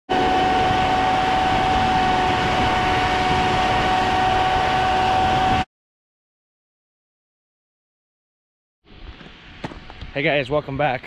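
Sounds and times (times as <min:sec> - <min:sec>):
crop sprayer engine rumbling: 0:00.1 - 0:05.6
steady high whine: 0:00.1 - 0:05.7, 0:08.9 - 0:11.0.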